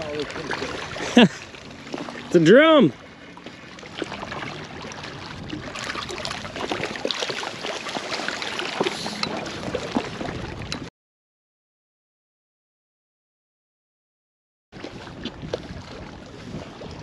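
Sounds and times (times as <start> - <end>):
water along rocks: 0.0 - 10.9, 14.8 - 17.0
wind: 0.0 - 10.9, 14.7 - 17.0.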